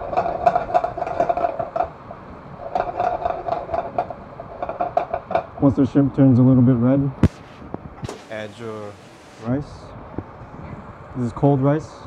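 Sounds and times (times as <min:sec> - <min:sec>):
steady hum: 0:07.2 - 0:09.9.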